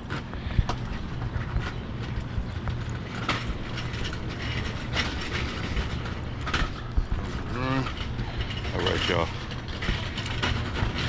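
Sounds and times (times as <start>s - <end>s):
knocks and rattles: 0.0s - 11.0s
van engine and road rumble: 0.0s - 11.0s.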